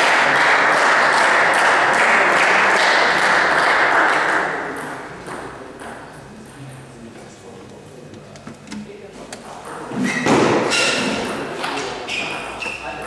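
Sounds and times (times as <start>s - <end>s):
spectators applauding: 0.0s - 4.6s.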